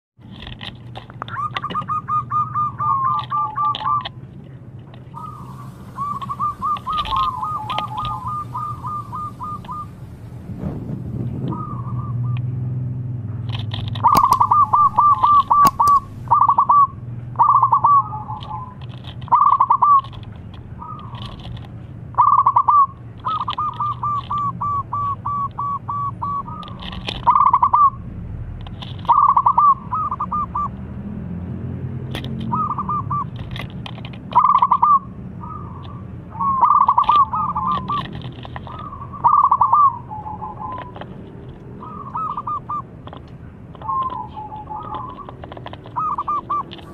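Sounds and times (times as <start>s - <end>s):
dove cooing: 1.2s - 4.2s, 5.1s - 10.4s, 11.3s - 12.6s, 13.8s - 21.6s, 22.2s - 28.0s, 29.0s - 30.8s, 32.3s - 46.9s
steady low hum: 4.1s - 26.6s.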